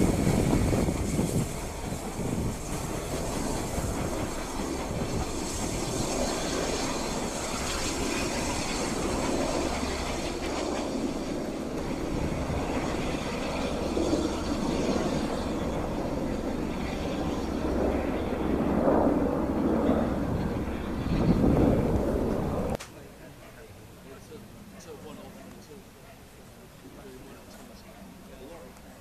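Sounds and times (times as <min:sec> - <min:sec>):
steam locomotives running: 0:00.0 - 0:10.5.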